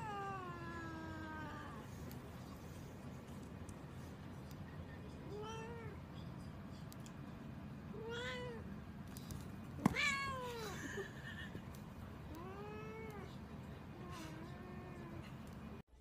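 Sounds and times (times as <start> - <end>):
cat meowing: 9.9 - 10.7.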